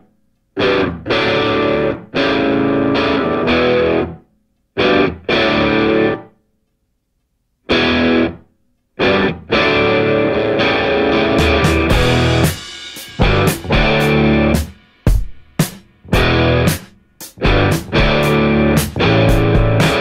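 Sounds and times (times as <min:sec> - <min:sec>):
distorted electric guitar chords: 0:00.6 - 0:04.2, 0:04.8 - 0:06.3, 0:07.7 - 0:08.4, 0:09.0 - 0:14.8, 0:16.0 - 0:20.0.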